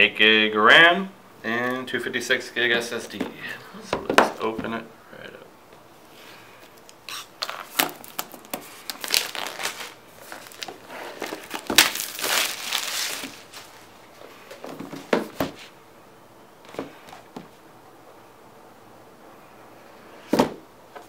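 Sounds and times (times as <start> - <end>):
plastic wrap crinkling: 7.1 - 14.7.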